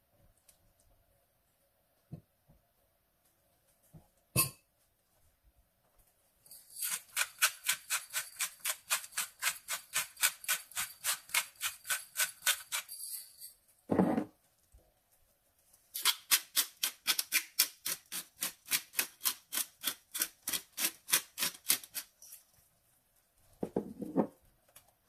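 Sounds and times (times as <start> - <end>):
salt and pepper shaker rattling: 6.4 - 13.6.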